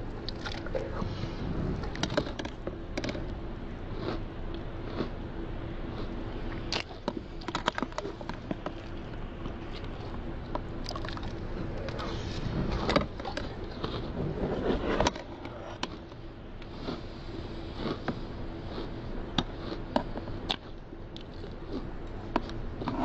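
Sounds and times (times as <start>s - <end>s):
faint steady hum: 0.0s - 23.0s
chewing cereal: 3.9s - 5.2s, 5.8s - 14.2s, 17.7s - 23.0s.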